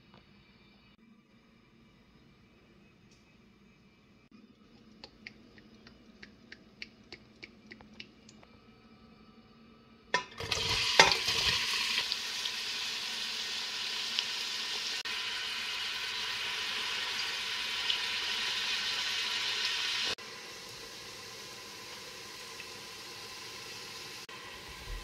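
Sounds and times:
onions sizzling in hot oil: 10.2 - 25.0.

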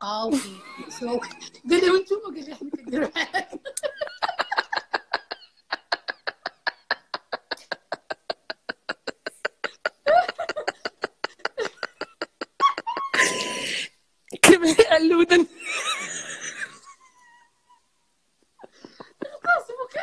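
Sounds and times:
women laughing hard: 2.7 - 13.7, 15.6 - 17.8, 18.6 - 19.6.

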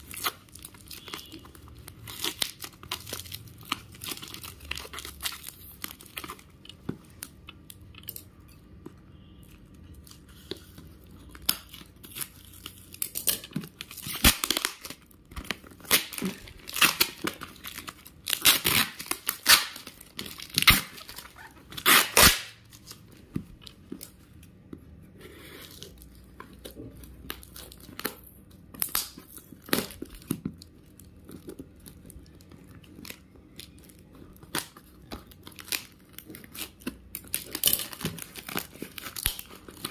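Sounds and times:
plastic wrapping crumpled by hand: 0.0 - 8.2, 9.9 - 24.4, 25.5 - 39.9
packing tape being torn: 11.3 - 23.0, 27.3 - 39.9.

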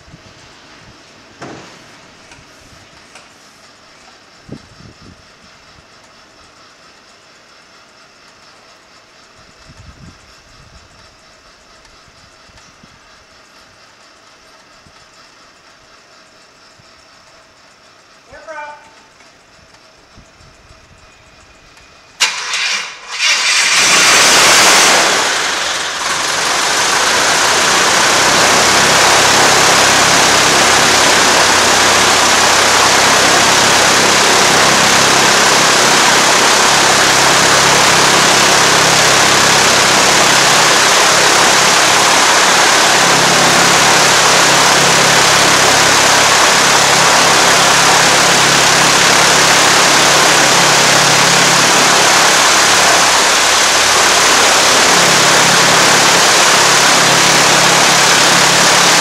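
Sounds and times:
piston aircraft engine running: 19.2 - 59.0.

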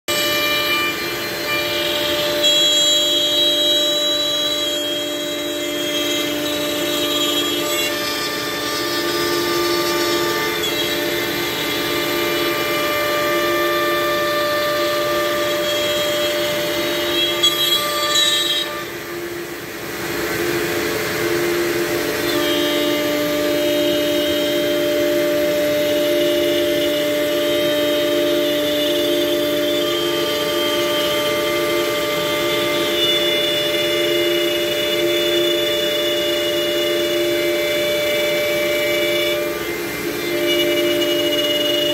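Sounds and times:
router bit cutting wood: 0.1 - 41.9
router spindle whining: 0.1 - 41.9.

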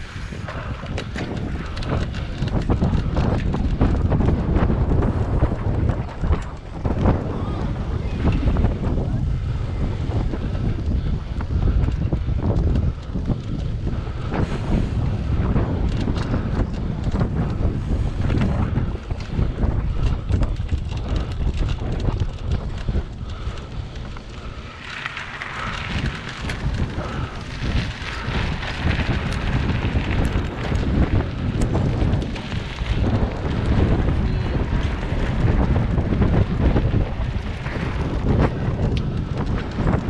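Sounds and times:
bike rumbling on rough dirt: 0.0 - 40.0
wind buffeting microphone: 0.0 - 40.0.

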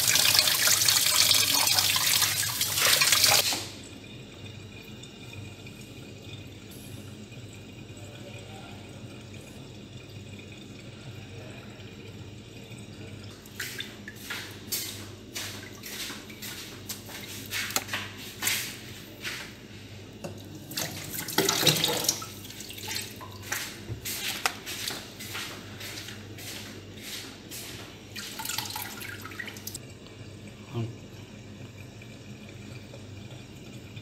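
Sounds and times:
water splashing in a plastic tub: 0.0 - 3.8, 13.3 - 18.7, 20.5 - 26.6.

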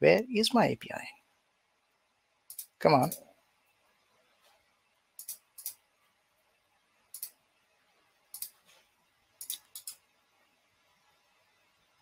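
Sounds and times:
computer mouse double clicks: 5.2 - 5.8, 9.4 - 10.0.

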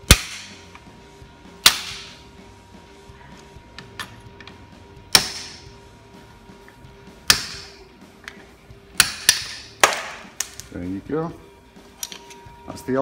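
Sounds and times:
hammer striking metal: 1.6 - 2.2, 5.1 - 5.7, 7.2 - 7.8, 9.0 - 10.2.

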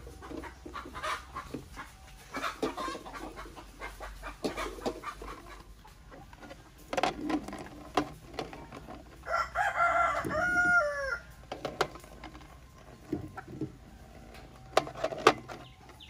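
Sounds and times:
rooster crowing: 9.2 - 11.3.

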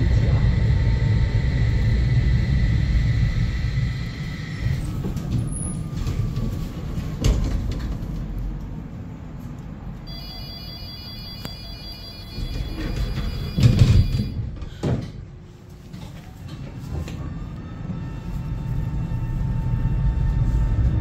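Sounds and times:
tram motor whine: 0.0 - 7.9, 10.0 - 14.7, 16.8 - 21.0
tram rumble on rails: 0.0 - 21.0.

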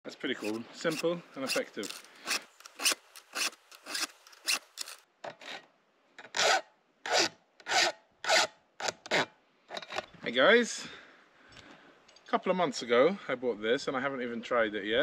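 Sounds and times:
hand file scraping chainsaw chain: 0.3 - 5.0.

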